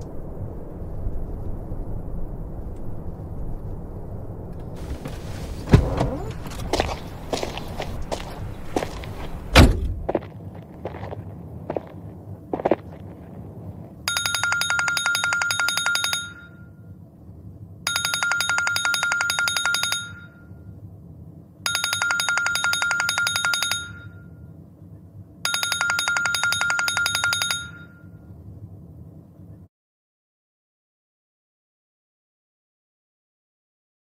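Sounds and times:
telephone ringing: 14.1 - 16.8, 17.9 - 20.6, 21.7 - 24.4, 25.4 - 28.2.

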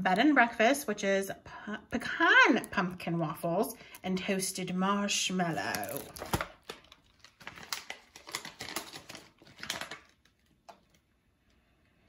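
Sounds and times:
paper bag crinkling: 5.5 - 11.1.

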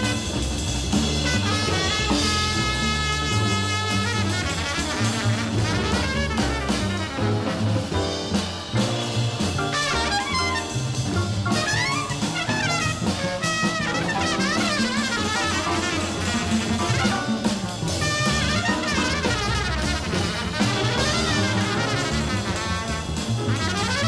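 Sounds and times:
trumpet playing: 0.0 - 8.2, 9.6 - 24.0
acoustic bass: 0.0 - 13.2, 16.0 - 24.0
drums: 0.0 - 24.0
piano: 0.0 - 24.0
saxophones playing: 9.7 - 23.2.

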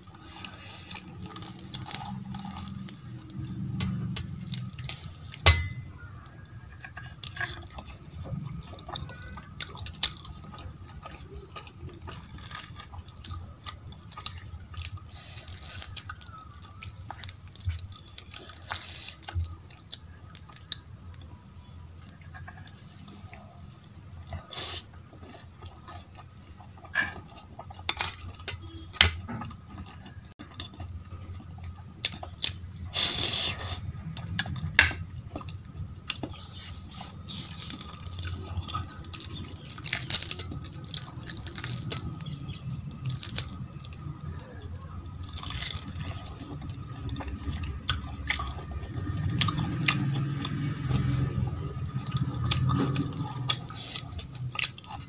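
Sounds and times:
chewing: 0.0 - 55.0
spoon clinking on steel bowl: 5.5 - 5.8
crisp pastry torn by hand: 37.1 - 44.1.

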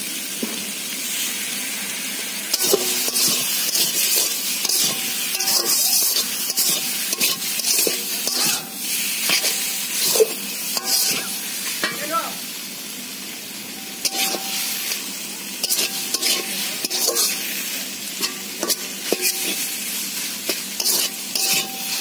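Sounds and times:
food sizzling: 0.0 - 22.0
metal spatula scraping a pan: 2.5 - 12.0, 14.0 - 22.0.

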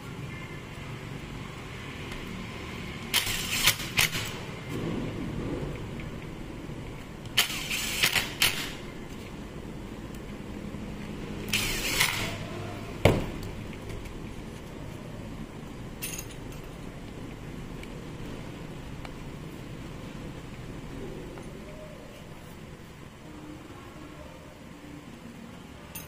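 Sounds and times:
impact driver bursts: 7.4 - 8.8, 11.5 - 12.4.

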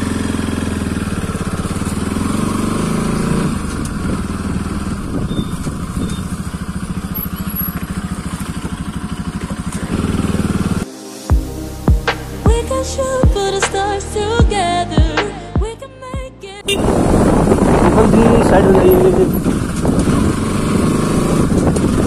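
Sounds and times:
motorcycle engine running: 0.0 - 15.7, 16.6 - 22.0
music: 10.8 - 16.7.

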